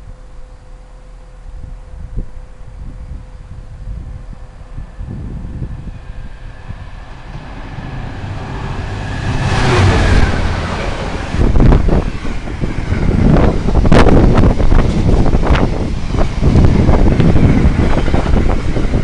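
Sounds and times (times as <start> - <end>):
locomotive passing: 4.1 - 19.0.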